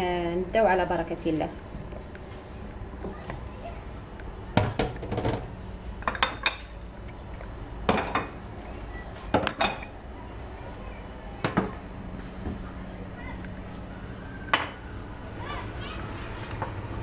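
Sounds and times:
kitchenware clinking on countertop: 0:14.5 - 0:14.8.

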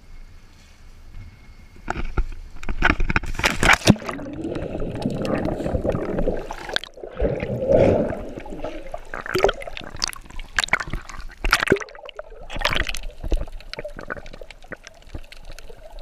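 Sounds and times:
sea water splashing: 0:03.4 - 0:16.0
muffled underwater bubbling: 0:03.8 - 0:16.0.

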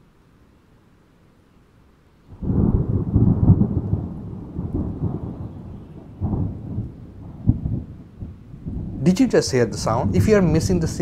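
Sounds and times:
faint hiss of rain: 0:00.0 - 0:11.0
thunder rumbling: 0:02.3 - 0:11.0.

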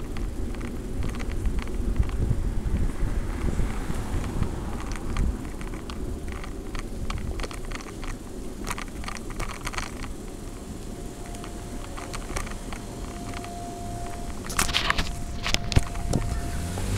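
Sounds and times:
bicycle clicks and rattles: 0:00.0 - 0:16.9
bicycle rolling on concrete: 0:00.0 - 0:16.9
wind on microphone: 0:00.0 - 0:16.9
faint steady whine: 0:04.4 - 0:16.9.

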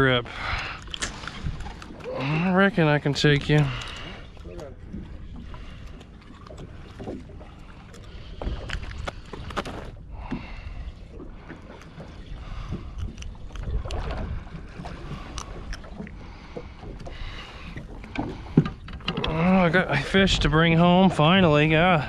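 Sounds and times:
water: 0:00.0 - 0:22.0
wind: 0:00.0 - 0:22.0
knocks and clicks of fishing gear: 0:07.9 - 0:10.5, 0:11.5 - 0:19.5.

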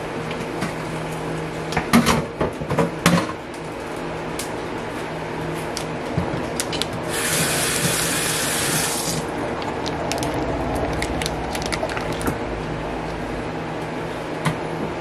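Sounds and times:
steady low hum: 0:00.0 - 0:15.0
kitchen tap running: 0:07.1 - 0:09.2.

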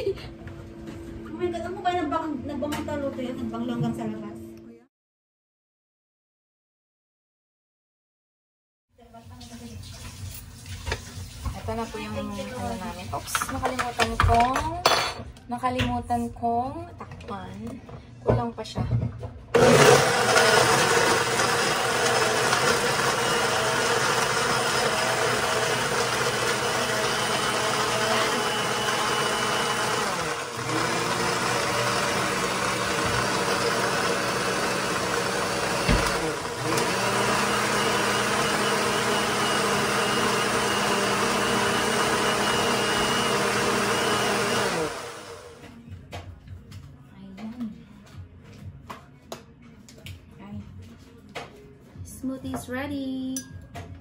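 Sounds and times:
blender motor running: 0:19.6 - 0:45.6.

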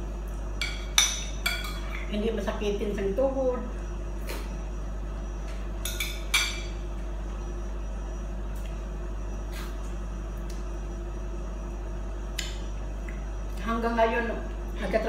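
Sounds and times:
steady low hum: 0:00.0 - 0:15.0
tableware clinking: 0:00.6 - 0:02.0, 0:05.8 - 0:06.8.

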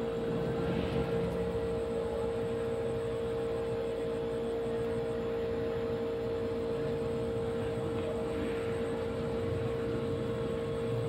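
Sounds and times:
low rumbling noise: 0:00.0 - 0:04.4
steady mid-pitched hum: 0:00.0 - 0:11.0.

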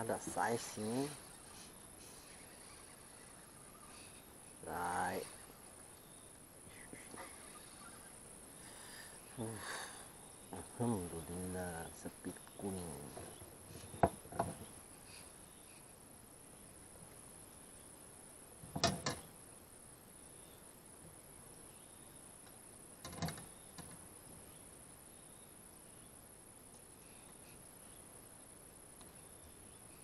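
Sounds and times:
insects droning: 0:00.0 - 0:30.0
knocks and rustles: 0:13.1 - 0:14.8, 0:18.6 - 0:19.3, 0:23.0 - 0:24.0.

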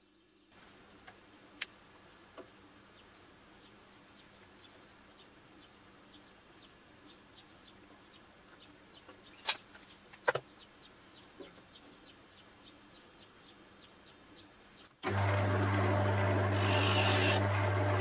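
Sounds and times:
wood lathe motor humming: 0:15.0 - 0:18.0.

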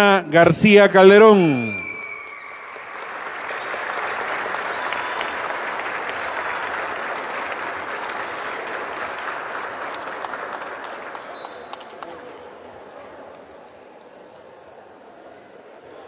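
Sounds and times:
crowd clapping: 0:01.5 - 0:13.8.

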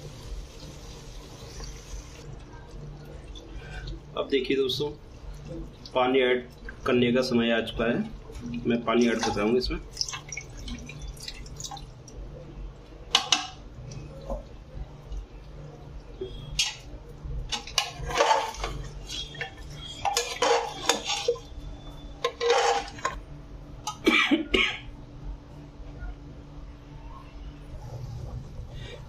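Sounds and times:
metal ladle scraping a pot: 0:17.5 - 0:21.5, 0:22.2 - 0:23.2.

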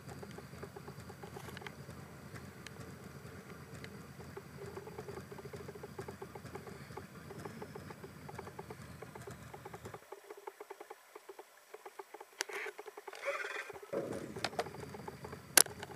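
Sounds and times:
rapid even ticking: 0:00.0 - 0:15.9
low hum: 0:13.2 - 0:15.9.

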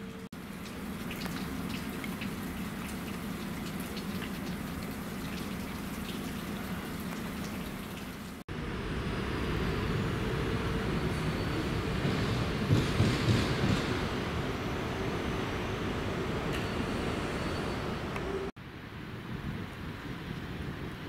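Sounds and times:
rain drops ticking: 0:00.0 - 0:08.4.

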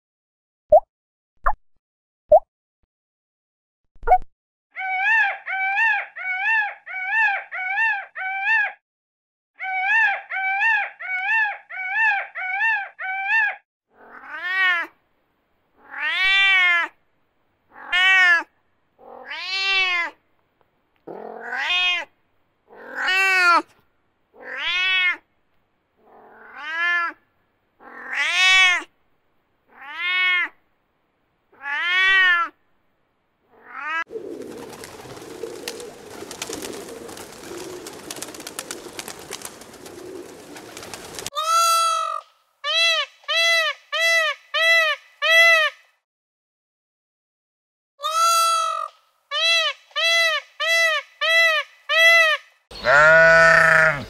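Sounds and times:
cat meowing: 0:15.8 - 0:16.9, 0:17.7 - 0:20.2, 0:21.1 - 0:22.1, 0:24.4 - 0:25.2, 0:26.1 - 0:27.2, 0:29.7 - 0:30.5
crackling hiss: 0:34.1 - 0:41.3
peafowl calling: 0:48.0 - 0:54.0.

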